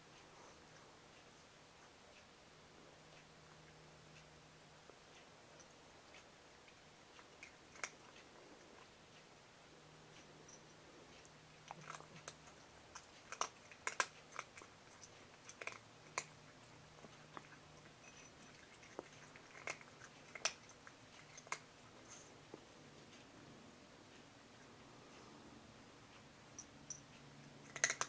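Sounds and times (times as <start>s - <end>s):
cat chewing food: 0.2s - 25.4s, 27.5s - 28.0s.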